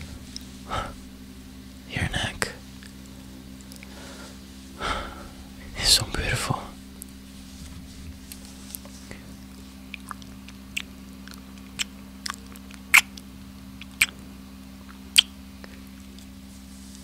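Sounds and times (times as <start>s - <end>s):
lip smacks: 9.8s - 14.2s, 14.8s - 16.2s.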